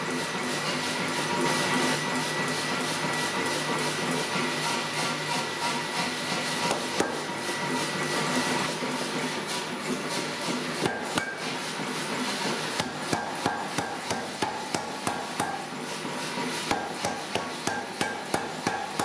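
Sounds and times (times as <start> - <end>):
steady machinery noise: 0.0 - 19.0
power hammer striking hot metal: 6.5 - 7.4, 10.5 - 19.0.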